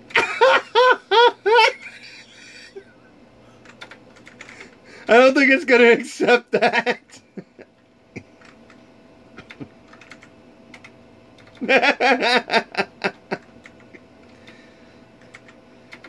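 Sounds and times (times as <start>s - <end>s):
clicky keyboard keystrokes: 3.6s - 4.6s, 8.4s - 8.7s, 9.4s - 11.6s, 15.2s - 16.0s.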